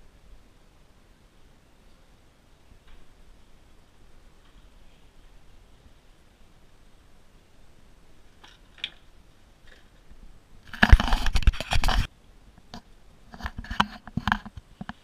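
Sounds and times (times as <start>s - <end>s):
scraping and crunching: 9.6s - 12.1s.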